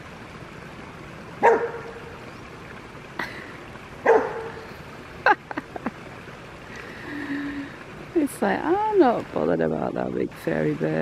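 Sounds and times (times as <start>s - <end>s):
dog barking: 1.4s - 2.0s, 4.0s - 4.6s.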